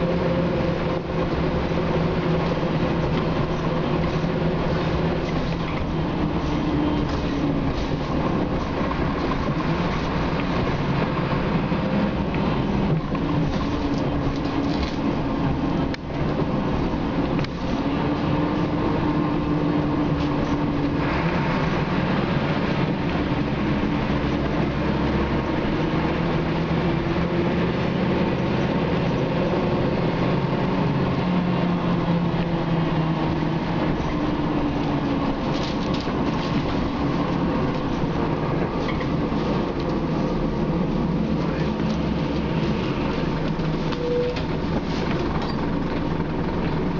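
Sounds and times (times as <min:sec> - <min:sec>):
bus diesel engine running: 0:00.0 - 0:46.9
road rumble: 0:00.0 - 0:46.9.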